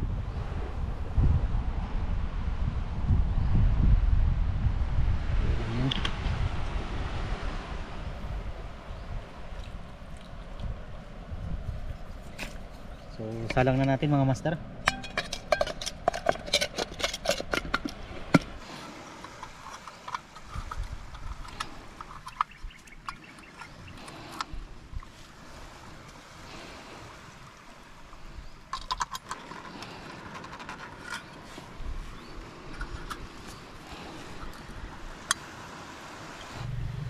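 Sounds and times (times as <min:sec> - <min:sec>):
steady low hiss: 0:31.3 - 0:37.0.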